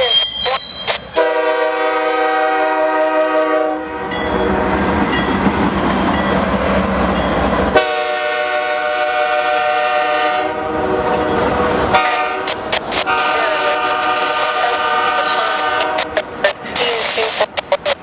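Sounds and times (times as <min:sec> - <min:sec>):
locomotive rumble and wheel noise: 0:00.0 - 0:18.0
locomotive air horn blasts: 0:01.1 - 0:04.2, 0:07.8 - 0:11.3, 0:11.9 - 0:16.2.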